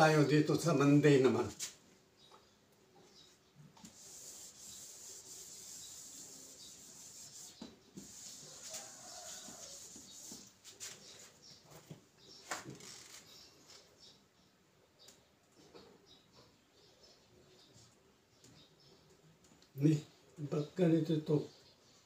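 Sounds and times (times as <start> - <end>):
eraser scrubbing whiteboard: 3.9 - 11.0.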